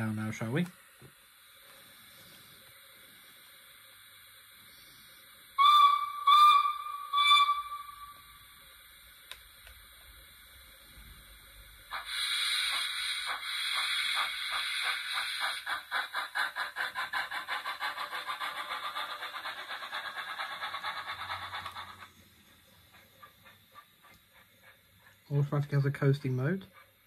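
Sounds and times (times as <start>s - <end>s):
steam hiss: 0.0s - 26.4s
steam engine exhaust chuffs: 9.9s - 26.5s.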